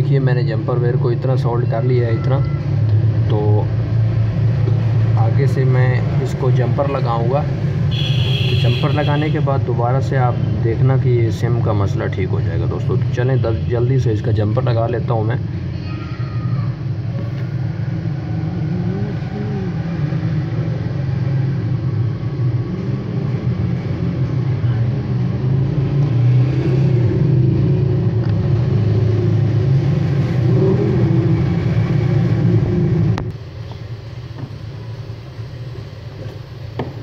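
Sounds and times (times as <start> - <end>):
low motor rumble: 16.7 - 37.0.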